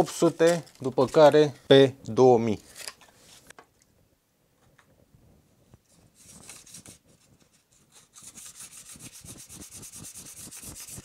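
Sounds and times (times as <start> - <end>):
sandpaper rubbing back and forth: 7.8 - 11.0.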